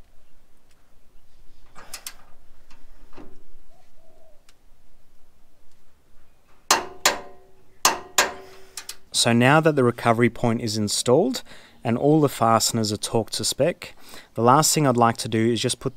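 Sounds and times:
torque wrench clicking: 7.9 - 9.0.

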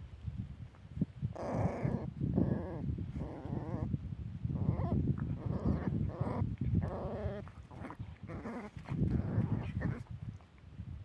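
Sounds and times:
puppy whining and yelping: 4.6 - 10.0.

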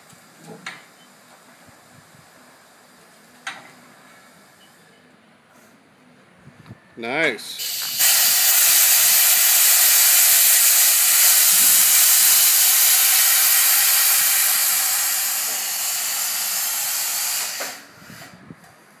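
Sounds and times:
compressed air hissing: 7.6 - 18.4.

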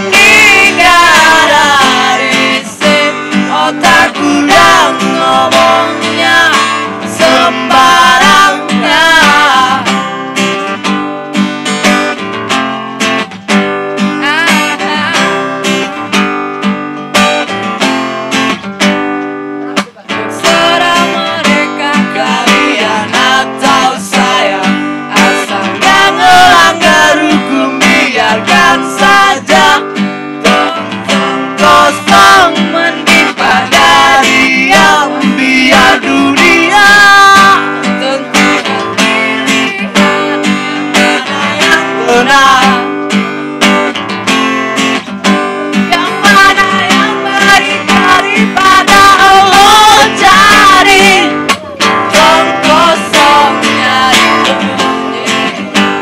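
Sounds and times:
woman singing: 0.0 - 10.0, 14.1 - 15.5, 20.3 - 43.0, 45.7 - 55.9
man singing: 0.0 - 10.1, 14.2 - 16.0, 19.8 - 43.0, 45.7 - 56.0
acoustic guitar strumming: 0.0 - 56.0.

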